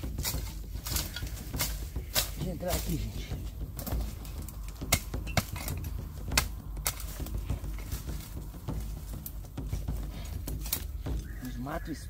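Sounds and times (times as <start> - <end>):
twigs and branches snapping: 0.0 - 11.6
low rustling rumble: 0.0 - 12.0.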